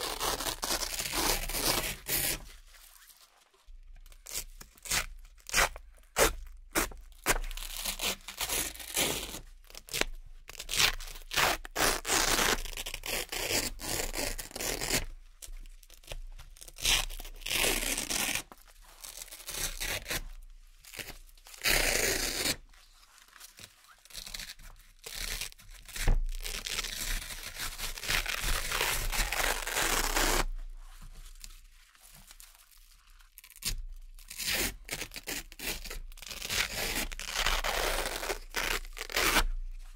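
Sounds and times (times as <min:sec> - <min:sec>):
velcro ripping: 0:00.0 - 0:02.4, 0:04.2 - 0:15.1, 0:16.6 - 0:20.2, 0:20.8 - 0:22.6, 0:23.6 - 0:30.6, 0:33.4 - 0:39.6.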